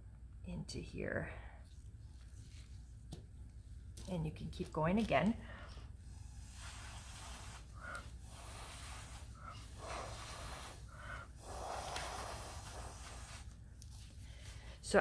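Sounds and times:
breath blown through a straw: 0:06.1 - 0:13.5.

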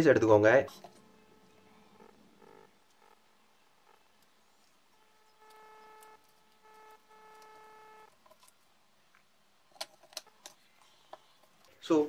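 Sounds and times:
faint electronic beeps: 0:00.0 - 0:08.4.

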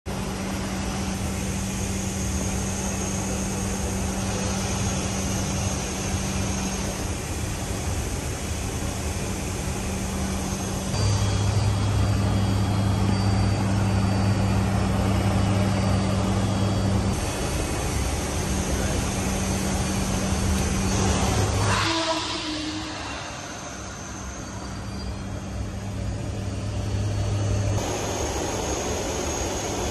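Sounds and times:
propeller engine drone: 0:00.1 - 0:29.9
rushing air hiss: 0:17.2 - 0:26.0.

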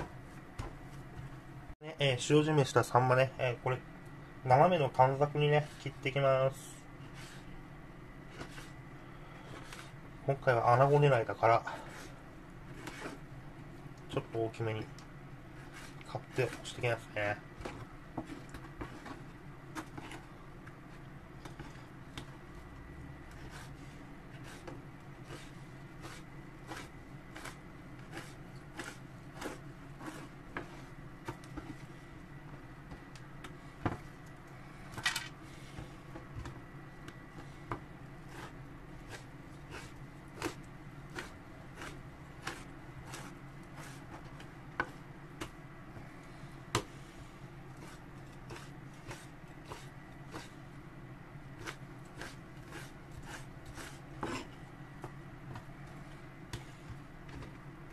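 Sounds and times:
knife scrape: 0:23.3 - 0:30.9, 0:38.2 - 0:44.2, 0:47.8 - 0:50.6, 0:51.6 - 0:54.6.

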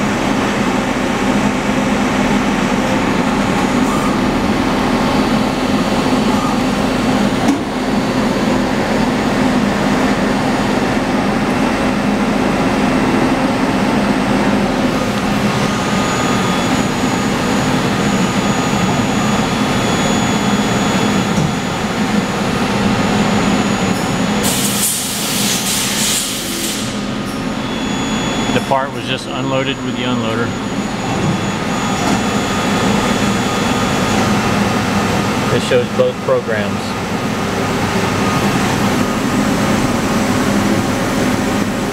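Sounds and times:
lathe machine hum: 0:00.0 - 0:41.9
coolant spraying hiss: 0:24.4 - 0:27.0.

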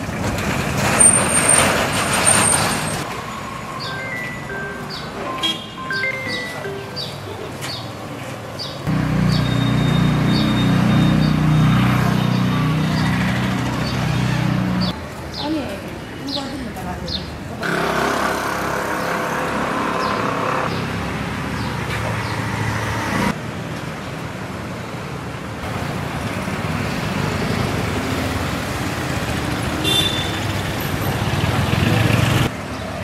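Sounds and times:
vehicles passing: 0:00.0 - 0:33.0
brief high tone: 0:03.6 - 0:07.3.

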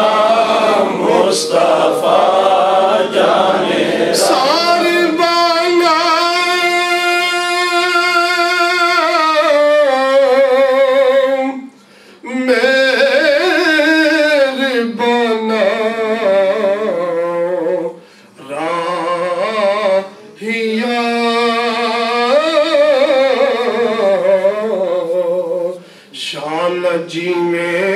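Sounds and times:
man chanting into microphone: 0:04.1 - 0:27.9.

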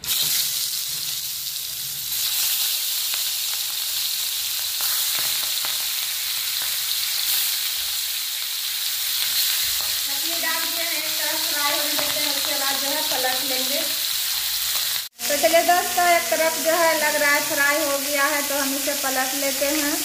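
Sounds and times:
oil crackling and popping: 0:00.0 - 0:15.5
fish sizzling in hot oil: 0:00.0 - 0:20.0.

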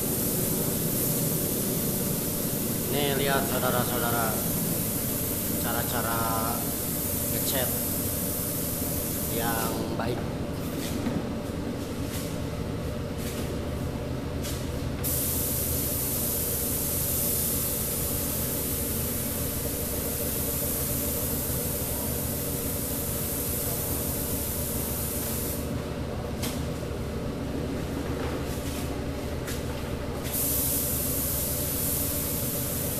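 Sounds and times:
paint spray gun hissing: 0:00.0 - 0:09.8, 0:15.0 - 0:25.7, 0:30.3 - 0:32.9
low machine hum: 0:00.0 - 0:32.9.

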